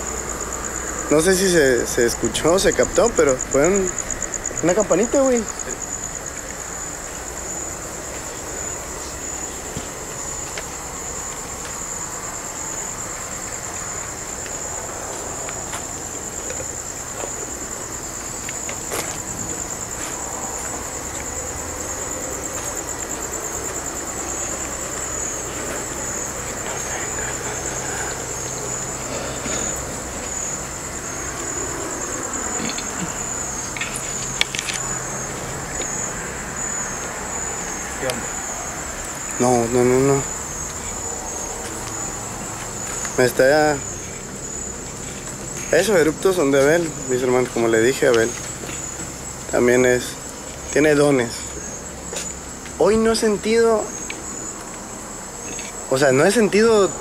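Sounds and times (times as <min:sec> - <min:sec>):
crickets chirping: 0:00.0 - 0:57.0.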